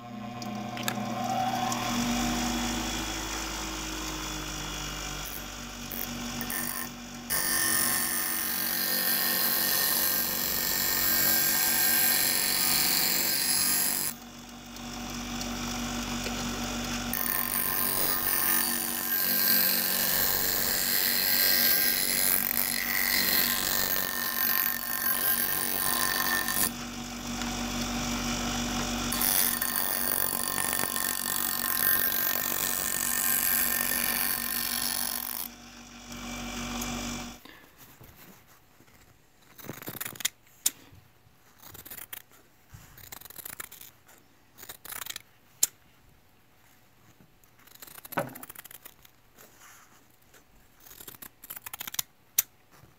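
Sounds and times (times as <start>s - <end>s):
grinder motor hum: 0.0s - 37.5s
bench grinder grinding metal: 0.0s - 37.6s.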